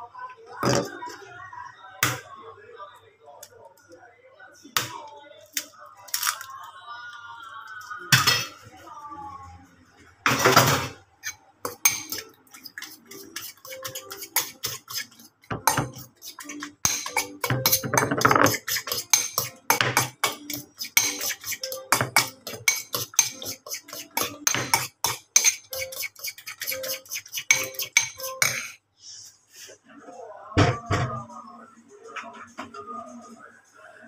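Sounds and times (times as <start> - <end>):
spoon clinking against bowl: 11.2 - 28.8.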